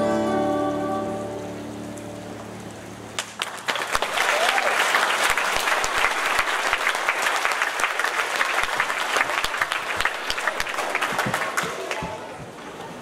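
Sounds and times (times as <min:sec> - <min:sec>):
audience applauding: 0:03.2 - 0:12.4.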